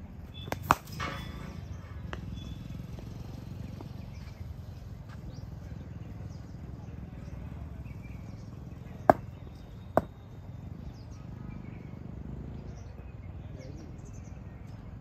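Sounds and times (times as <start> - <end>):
cricket bat knocks: 9.1 - 9.3.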